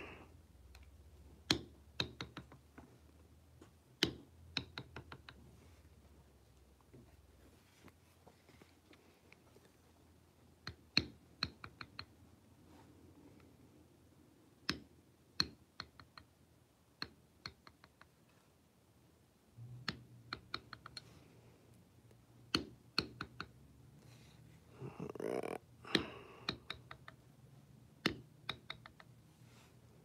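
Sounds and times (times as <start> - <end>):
mallet tapping leather stamp: 22.4 - 23.6.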